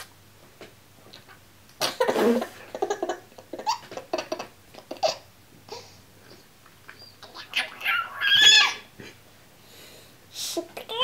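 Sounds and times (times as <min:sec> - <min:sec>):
baby laughing: 0:01.8 - 0:05.9.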